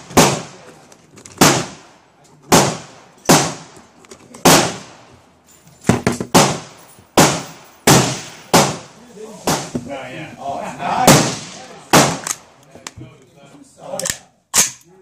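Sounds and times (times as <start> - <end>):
gunshots with echo: 0.0 - 0.7, 1.4 - 1.9, 2.5 - 3.7, 4.4 - 5.0, 6.3 - 9.7, 11.0 - 12.4.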